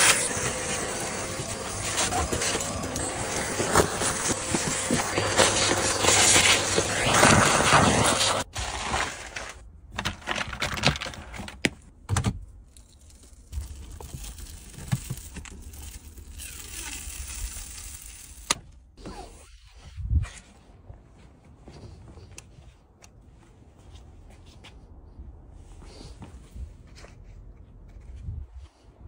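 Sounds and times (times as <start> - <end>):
vacuum cleaner sucking: 0.0 - 9.6.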